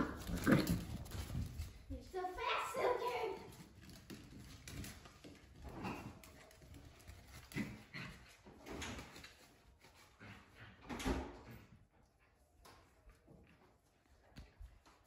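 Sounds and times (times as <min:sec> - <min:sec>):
puppies playing: 0:00.0 - 0:15.0.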